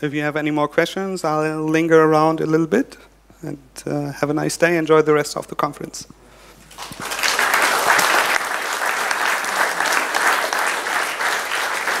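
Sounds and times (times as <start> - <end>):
audience applauding: 6.7 - 12.0.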